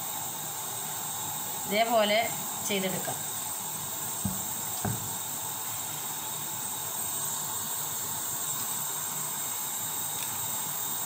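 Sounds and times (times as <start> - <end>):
steady hiss: 0.0 - 11.0
soft knocks: 4.2 - 5.2.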